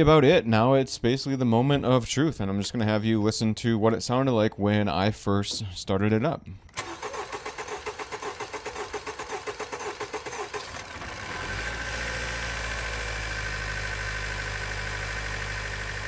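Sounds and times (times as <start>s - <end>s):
car engine cranking and idling: 6.7s - 16.0s.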